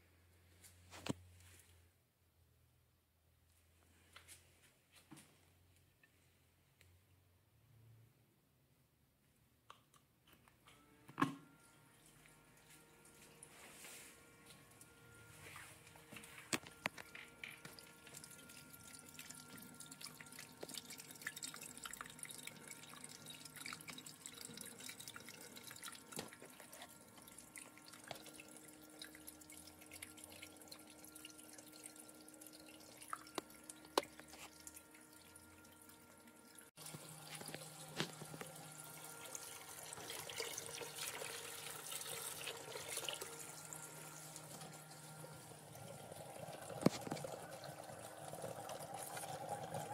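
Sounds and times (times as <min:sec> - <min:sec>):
faint steady hum: 0:00.0 - 0:49.9
water dripping and trickling: 0:17.4 - 0:49.9.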